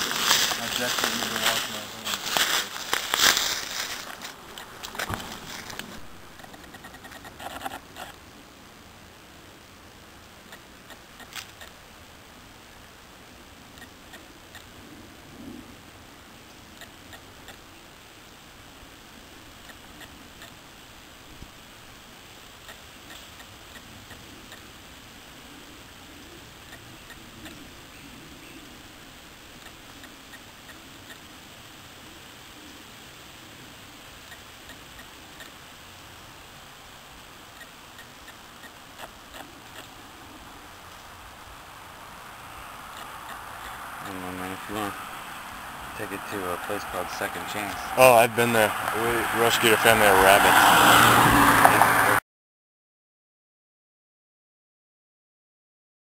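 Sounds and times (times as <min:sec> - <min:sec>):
footsteps crunching dry leaves: 0:00.0 - 0:06.4
steady background hiss: 0:00.0 - 0:52.2
faint irregular clicks: 0:02.4 - 0:08.2, 0:10.4 - 0:11.8, 0:13.7 - 0:14.7, 0:16.5 - 0:17.7, 0:19.6 - 0:20.7, 0:22.5 - 0:24.7, 0:29.5 - 0:31.3, 0:34.2 - 0:35.7, 0:37.4 - 0:40.0.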